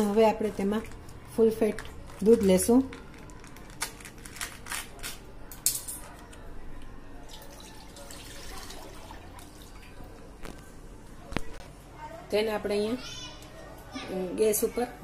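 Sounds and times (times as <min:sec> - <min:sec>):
plastic pouch crinkling and clicking: 0:00.8 - 0:05.2
milk pouring into steel pan: 0:07.3 - 0:10.2.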